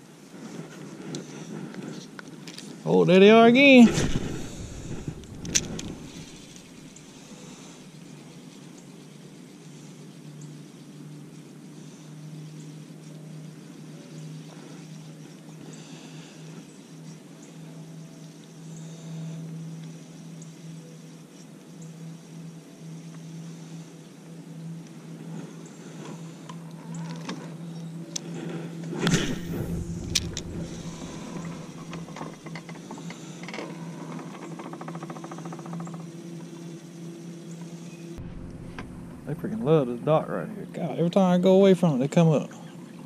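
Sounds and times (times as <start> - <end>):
thump and rustle: 3.9 - 6.8, 28.9 - 32.8.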